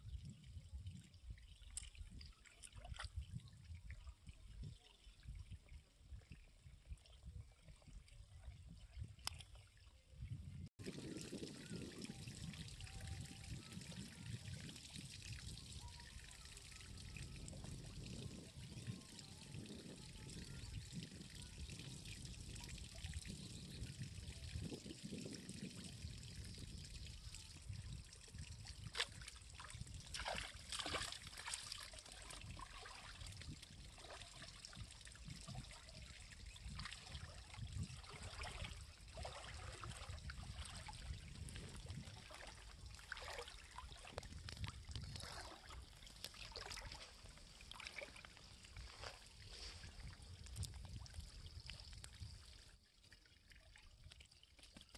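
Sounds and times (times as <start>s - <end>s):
water sloshing and trickling: 0.0s - 54.9s
sharp water splashes: 28.8s - 33.2s.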